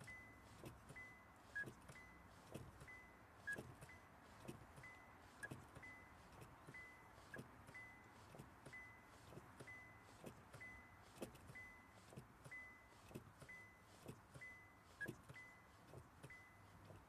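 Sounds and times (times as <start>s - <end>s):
car warning chime beeping: 0.0s - 17.0s
soft knocks of boot on pedal: 0.6s - 17.0s.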